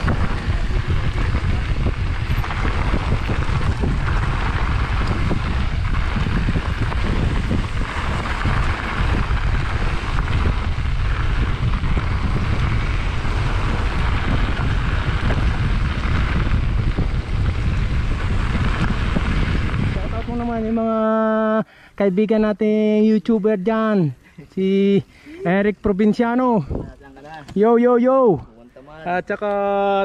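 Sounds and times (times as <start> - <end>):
wind buffeting microphone: 0.0 - 21.4, 26.5 - 28.5.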